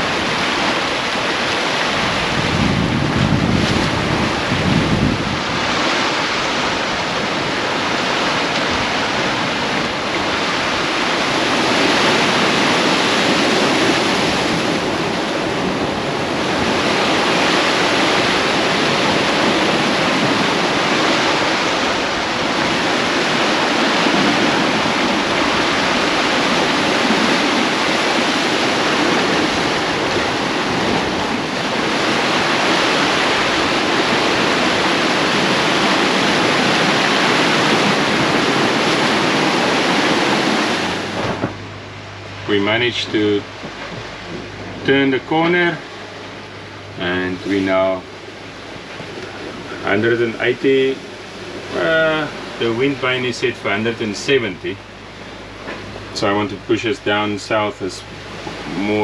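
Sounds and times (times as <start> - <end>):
wind on microphone: 0.0 - 57.2
water rushing along hull: 0.0 - 59.0.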